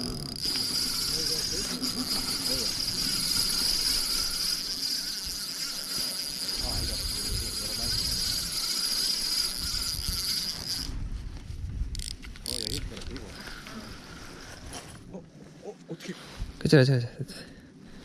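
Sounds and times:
fishing reel whirring: 0.0s - 11.1s, 11.9s - 14.7s.

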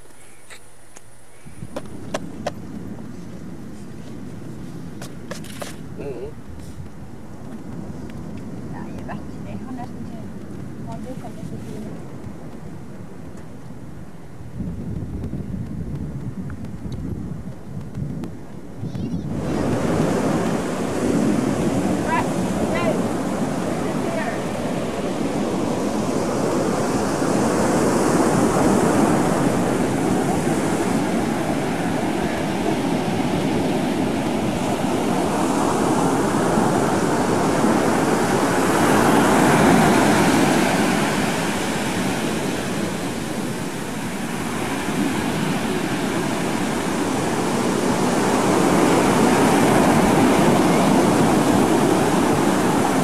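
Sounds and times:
ocean surf breaking on beach: 0.0s - 53.0s.

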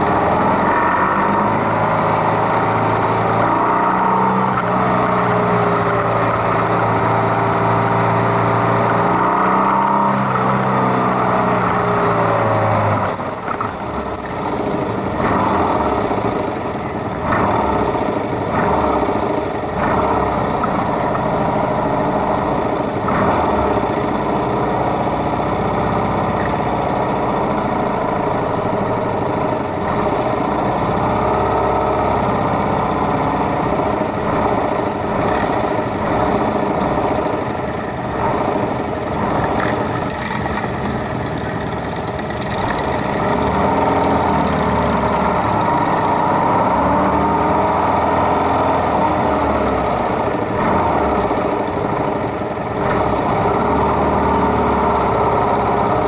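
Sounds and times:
motorcycle engines idling: 11.5s - 46.3s, 48.8s - 56.0s.

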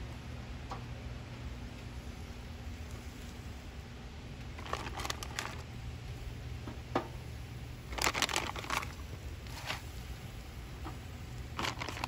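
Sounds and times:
low steady rumble: 0.0s - 12.0s
plastic bag crinkling: 4.5s - 5.8s, 7.8s - 10.0s, 11.4s - 12.0s.

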